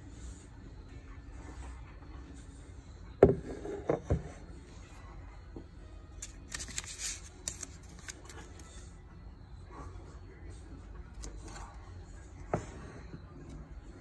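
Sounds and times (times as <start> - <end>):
paper card rustling: 6.2 - 8.7.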